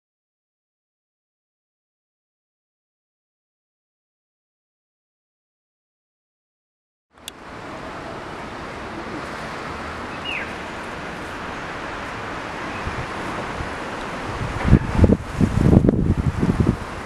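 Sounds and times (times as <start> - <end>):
outdoor background hiss: 7.2 - 17.0
falling bird chirp: 10.1 - 10.9.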